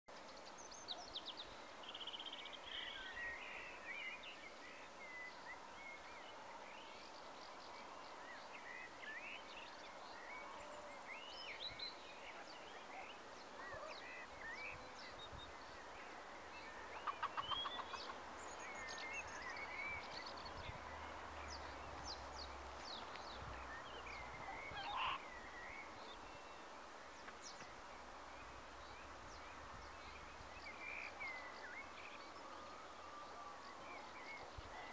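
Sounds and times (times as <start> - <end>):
soft hiss: 0.2 - 34.9
birds chirping and singing: 8.7 - 26.7.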